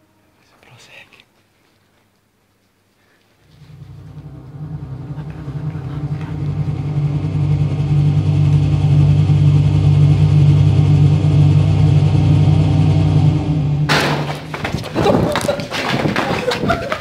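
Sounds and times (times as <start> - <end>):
loud low steady drone: 3.5 - 14.4.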